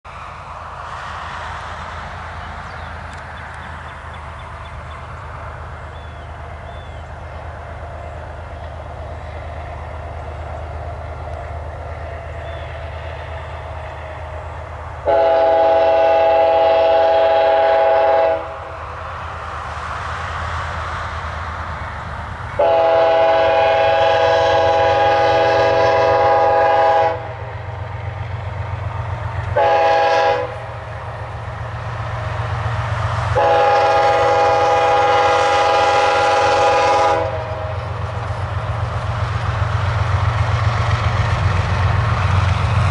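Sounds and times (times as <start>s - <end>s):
diesel locomotives rumbling: 0.0s - 42.9s
locomotive air horn blasts: 15.0s - 18.7s, 22.6s - 27.5s, 29.5s - 30.8s, 33.4s - 37.8s.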